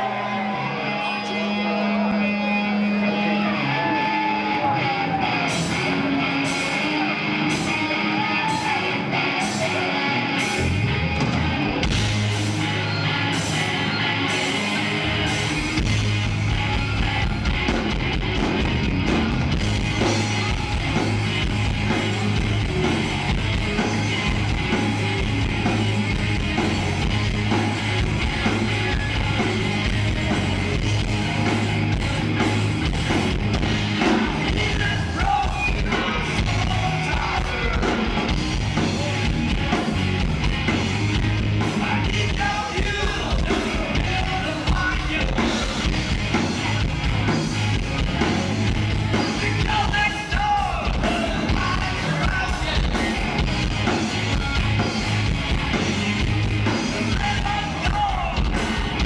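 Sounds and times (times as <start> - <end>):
bass guitar: 0.0 - 59.0
distorted electric guitars: 0.0 - 59.0
drum kit: 5.4 - 59.0.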